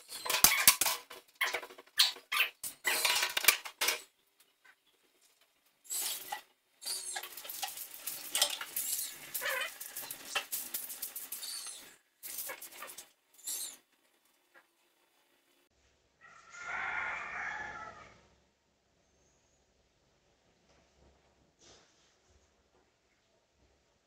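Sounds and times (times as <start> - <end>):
dishes and utensils clattering: 0.0 - 4.1, 5.9 - 13.1.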